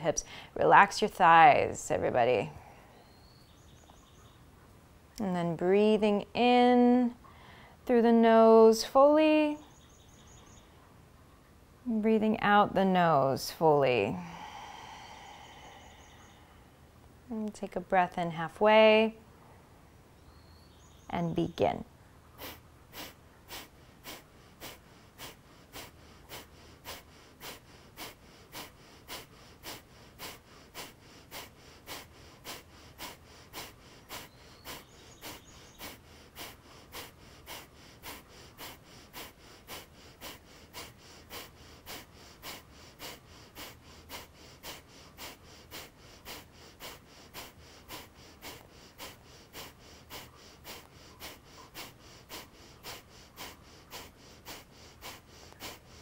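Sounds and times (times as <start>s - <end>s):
quiet inhales: 0.2s - 0.6s, 2.5s - 3.3s, 7.2s - 7.8s, 13.9s - 17.2s, 22.4s - 56.0s
woman exhaling sharply through nose: 14.2s - 16.8s.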